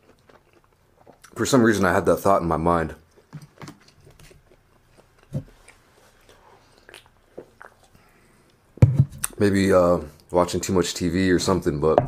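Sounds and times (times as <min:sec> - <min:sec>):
soft chewing and mouth clicks: 0:00.0 - 0:01.9, 0:03.0 - 0:09.4.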